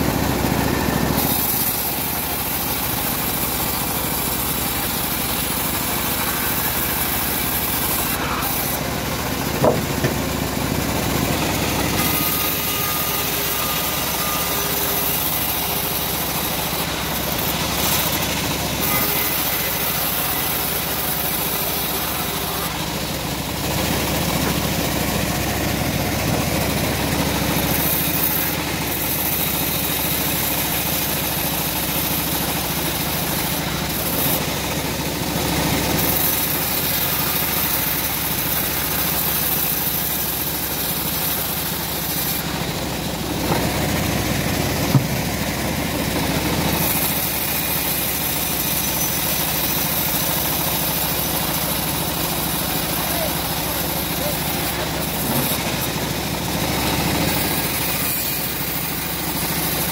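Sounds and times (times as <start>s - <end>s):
band sawmill cutting wood: 0.0s - 59.9s
sharp knock: 9.6s - 10.2s, 44.9s - 45.2s.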